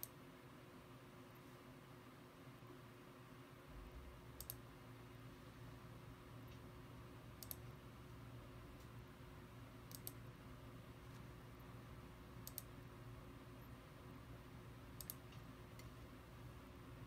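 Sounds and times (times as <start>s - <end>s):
faint room hum: 0.0s - 17.0s
mouse double clicks: 7.4s - 7.6s, 9.9s - 10.2s, 12.4s - 12.7s, 15.0s - 15.3s.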